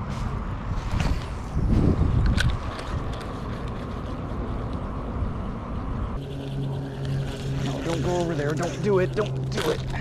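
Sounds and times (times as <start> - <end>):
wind buffeting microphone: 0.0 - 9.0.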